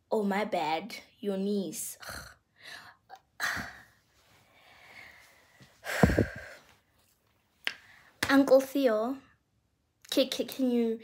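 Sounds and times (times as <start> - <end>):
woman sighing: 5.8 - 6.7.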